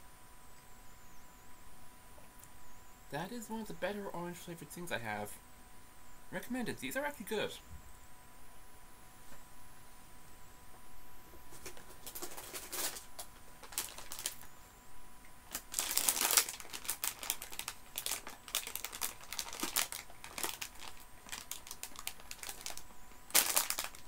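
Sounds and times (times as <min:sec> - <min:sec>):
sweet packaging crinkling: 0:11.5 - 0:14.5, 0:15.4 - 0:24.0.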